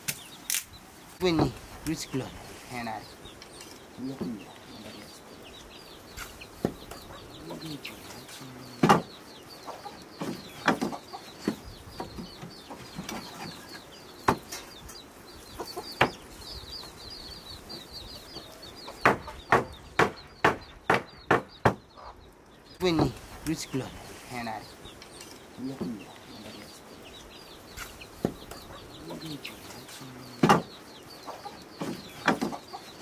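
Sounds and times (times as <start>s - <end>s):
chickens clucking: 0.0s - 33.0s
high chirping: 0.0s - 33.0s
hammer knocking on wooden boards: 8.8s - 9.1s, 10.2s - 12.5s, 19.0s - 21.9s, 30.4s - 30.7s.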